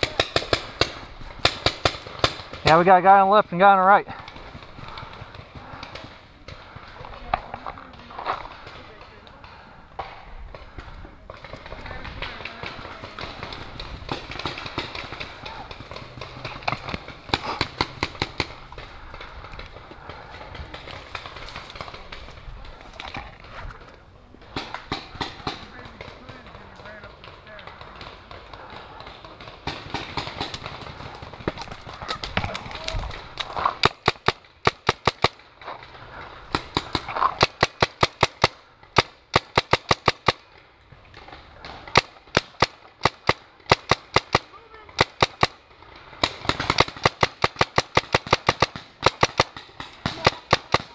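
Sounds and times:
paintball marker shots: 41.7s - 45.6s, 46.2s - 50.9s.

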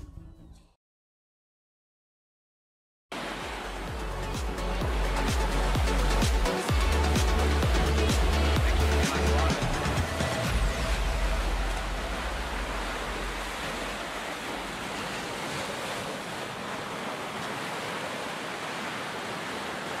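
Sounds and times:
waves breaking on a beach: 3.1s - 20.0s
deep rumble: 9.6s - 14.9s.

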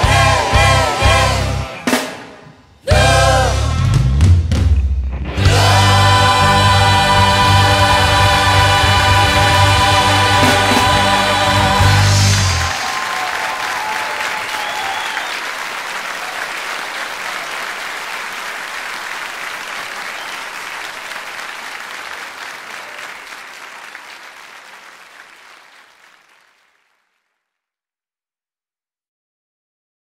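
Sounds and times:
choral music: 0.0s - 4.0s, 5.2s - 13.0s
audience applauding: 5.5s - 27.3s.

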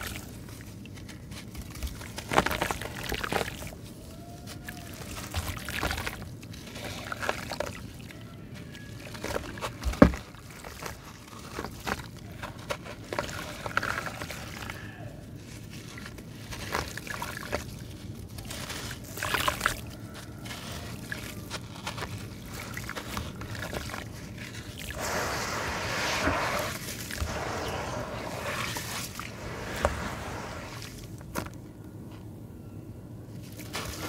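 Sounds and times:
water sloshing: 4.6s - 31.6s
gritty crackling and trickling grains: 5.1s - 31.6s.

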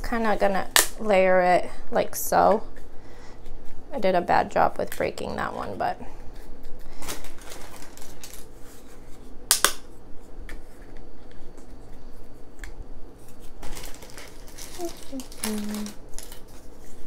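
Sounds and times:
sharp crack: 9.5s - 9.9s.

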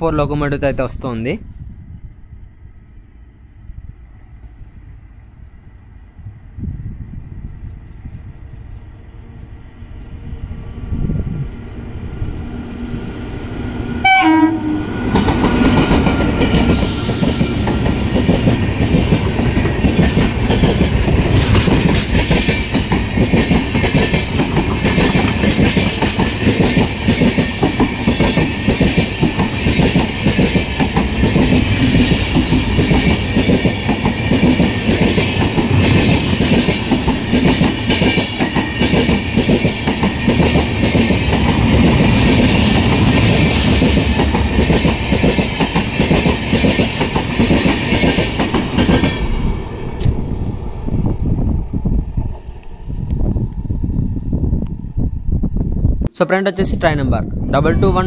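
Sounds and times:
train coaches rumbling past: 0.8s - 55.2s
train horn: 14.0s - 15.1s.

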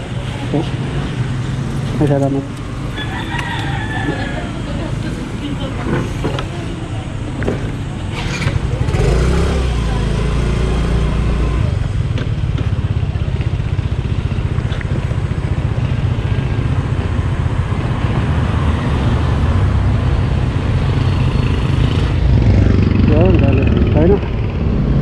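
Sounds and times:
road noise: 0.0s - 25.0s
scooter engine running: 2.7s - 18.4s.

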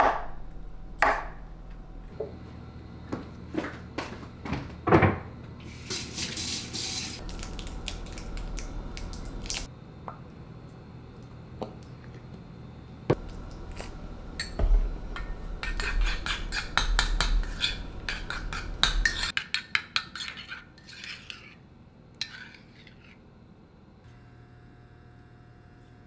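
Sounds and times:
metal spoon stirring in ceramic bowl: 15.2s - 21.6s, 22.2s - 23.2s.

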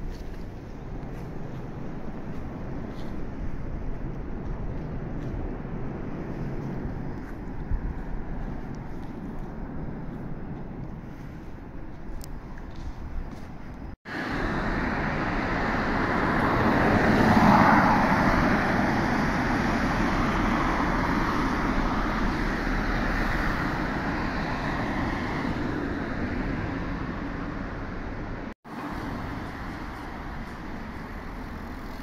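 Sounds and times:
road traffic: 0.0s - 32.0s
vehicle passing close: 14.1s - 32.0s.

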